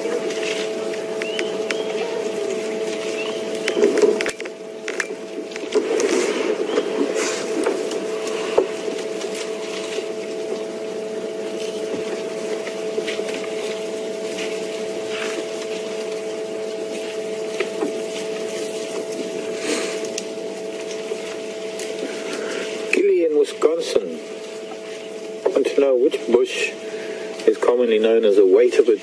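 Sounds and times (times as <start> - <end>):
branches snapping: 0.0 - 10.8, 11.5 - 23.1
steady low hum: 0.0 - 29.0
twigs rustling: 0.0 - 29.0.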